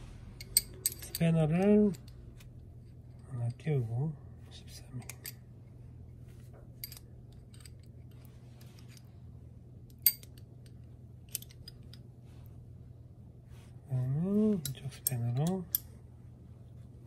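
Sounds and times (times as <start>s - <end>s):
low steady hum: 0.0s - 17.0s
metal spanner clinking on nut: 0.4s - 2.2s, 6.8s - 8.2s, 9.9s - 10.4s, 14.6s - 15.9s.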